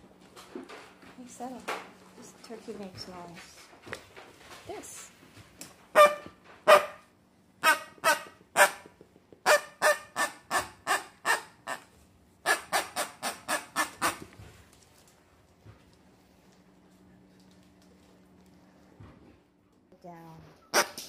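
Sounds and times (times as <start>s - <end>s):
toy noisemaker squeaky honks: 6.0s - 7.0s.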